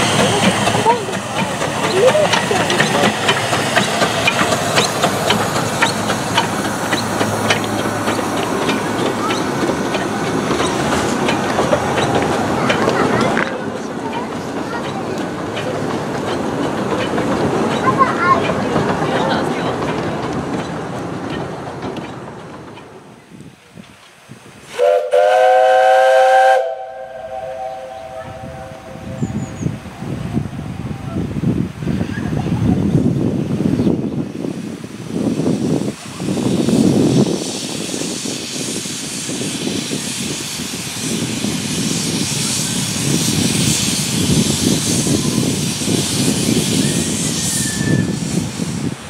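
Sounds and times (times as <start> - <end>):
hiss of steam: 0.0 - 16.8, 23.6 - 49.0
locomotive exhaust beats: 0.0 - 23.2
rumble of passing carriages: 0.0 - 26.8, 27.4 - 49.0
steam locomotive whistle: 24.7 - 29.7, 46.4 - 48.5.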